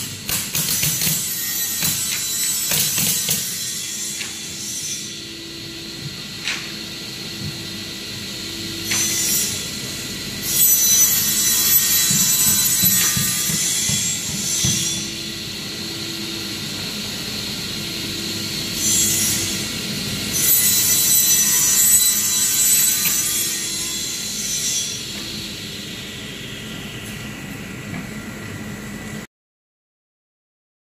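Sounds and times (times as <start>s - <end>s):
circular saw cutting plywood: 0.9s - 16.4s.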